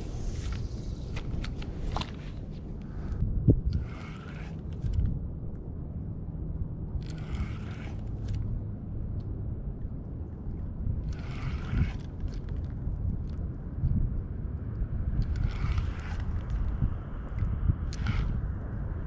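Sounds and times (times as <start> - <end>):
light wind and water rumble: 0.0 - 19.0
spinning reel cranking: 3.7 - 5.0, 7.0 - 8.4, 11.0 - 12.6, 15.2 - 16.6, 17.9 - 18.4.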